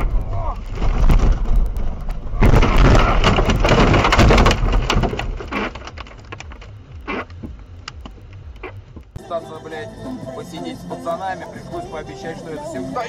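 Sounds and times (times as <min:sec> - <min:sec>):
car scraping and crunching through brush: 0:00.0 - 0:07.4.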